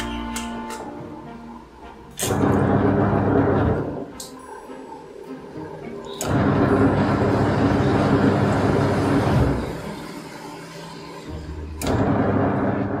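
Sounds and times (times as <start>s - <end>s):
washing machine motor humming: 2.2s - 13.0s.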